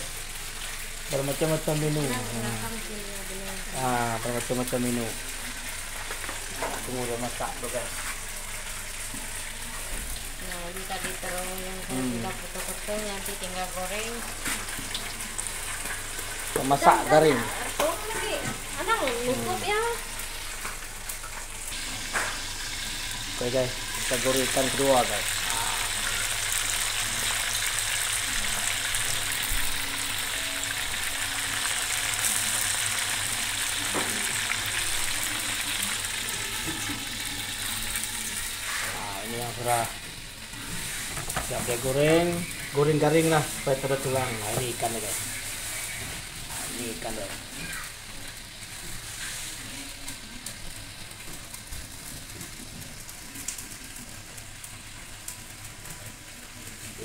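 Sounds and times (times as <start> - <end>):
fish sizzling in hot oil: 0.0 - 57.0.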